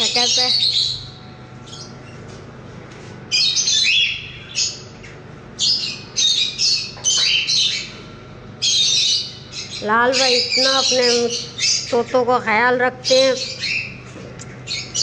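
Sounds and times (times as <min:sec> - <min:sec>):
parrots squawking: 0:00.0 - 0:02.1, 0:08.6 - 0:14.0.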